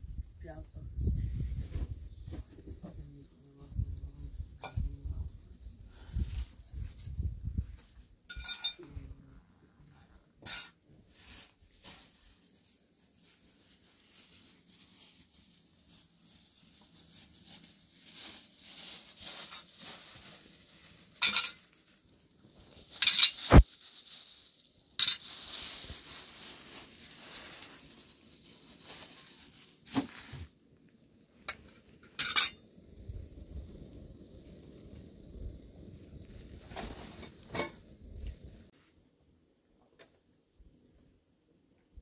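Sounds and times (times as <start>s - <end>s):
metal cookware clanking: 8.3s - 8.8s, 10.4s - 10.8s, 21.2s - 21.7s, 32.0s - 32.6s.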